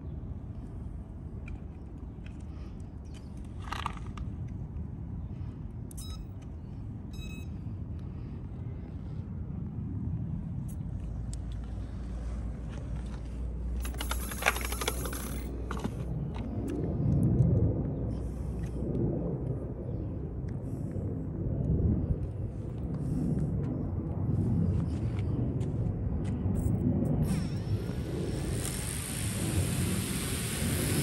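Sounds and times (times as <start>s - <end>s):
low rumble: 3.0s - 31.0s
rc helicopter high whine: 13.8s - 16.5s, 26.5s - 31.0s.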